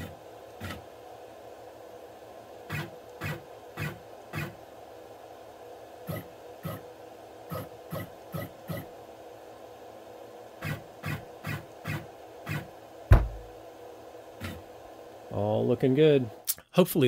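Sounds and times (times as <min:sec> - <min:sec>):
steady machine hum: 0:00.0 - 0:17.0
loud thump: 0:13.1 - 0:13.5.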